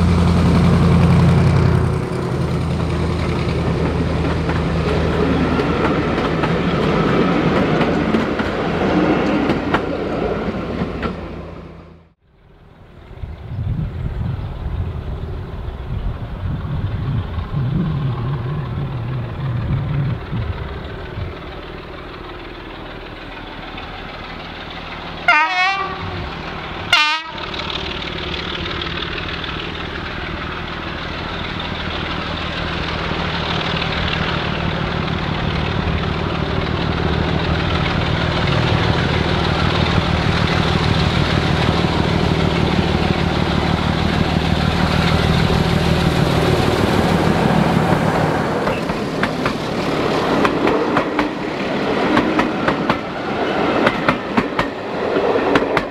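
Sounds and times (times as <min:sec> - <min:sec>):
diesel locomotive engine running: 0:00.0 - 0:55.9
locomotive horn blasts: 0:25.3 - 0:26.2, 0:26.9 - 0:27.4.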